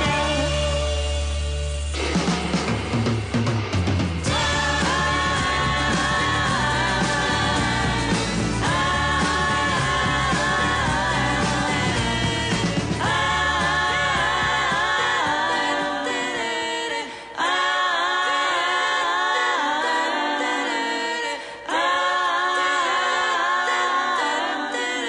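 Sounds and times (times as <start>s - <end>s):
a cappella voices singing chords: 0.0s - 2.0s, 4.2s - 25.0s
backing track bass and drums: 0.0s - 15.9s.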